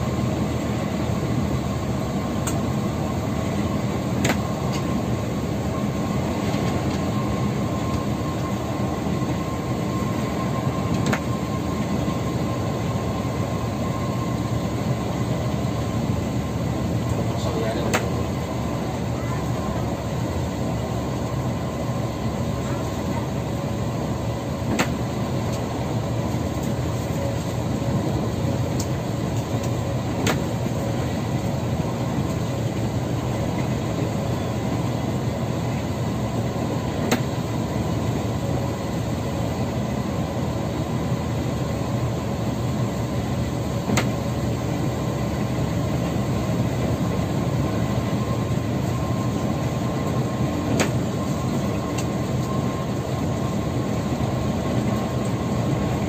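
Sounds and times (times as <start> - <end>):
coach engine and tyres droning: 0.0 - 56.0
faint whine: 0.0 - 56.0.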